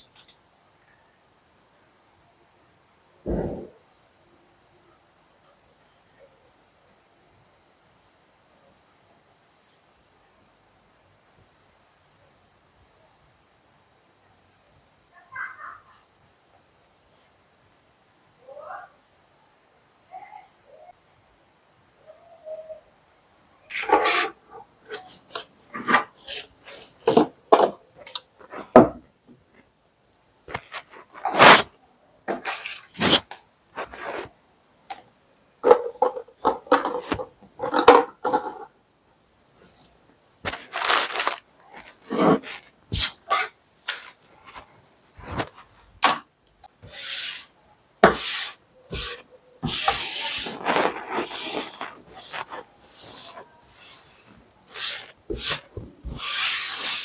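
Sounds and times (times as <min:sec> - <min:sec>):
packaging rustling: 0:40.4 - 0:42.8
tissue wiping tabletop: 0:46.8 - 0:57.0.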